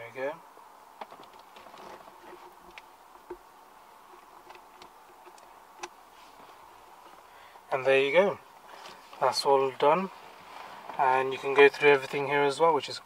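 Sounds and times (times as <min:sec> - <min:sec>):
faint car cabin hum: 0:00.0 - 0:13.0
faint clicks and ticks: 0:01.0 - 0:03.4, 0:04.1 - 0:06.0.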